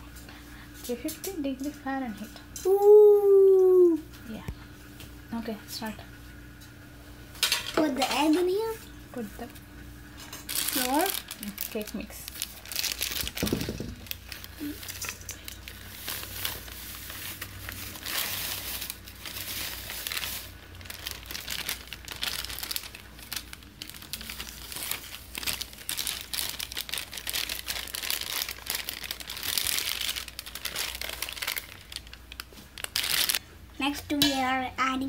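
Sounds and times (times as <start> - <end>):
plastic bag crinkling: 10.2 - 33.4.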